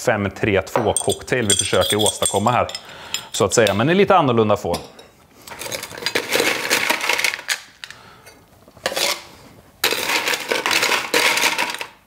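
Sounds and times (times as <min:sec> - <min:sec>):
ice cubes clattering against metal: 0:05.5 - 0:07.6, 0:09.8 - 0:12.0.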